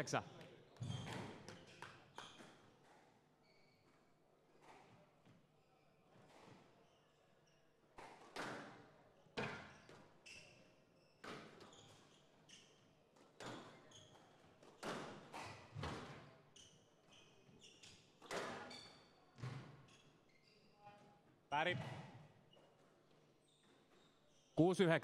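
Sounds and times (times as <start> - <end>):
shoes squeaking on court: 9.4 - 24.6.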